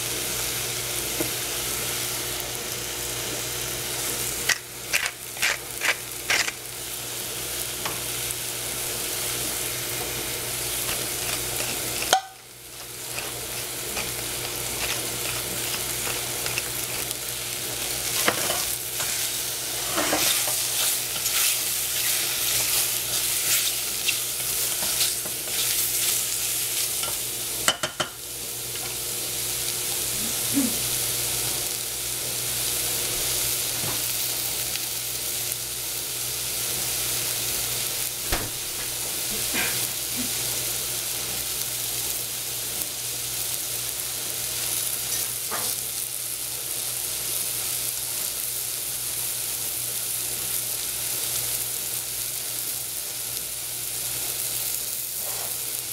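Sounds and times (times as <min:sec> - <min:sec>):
mushrooms sizzling in a saucepan: 0:00.0 - 0:55.9
popping in pan: 0:04.0 - 0:29.0, 0:36.6 - 0:55.9
wooden spatula scraping: 0:10.8 - 0:12.2, 0:12.8 - 0:17.2, 0:18.0 - 0:26.2.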